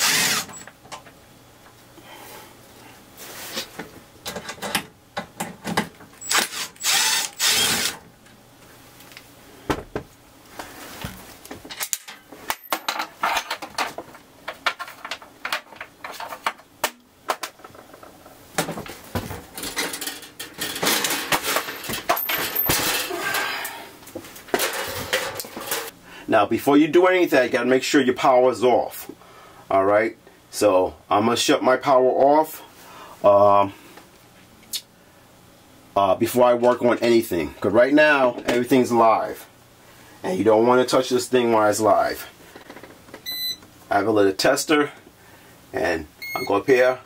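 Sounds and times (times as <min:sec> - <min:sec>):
cordless drill spinning: 0:00.0 - 0:00.7, 0:06.2 - 0:08.0.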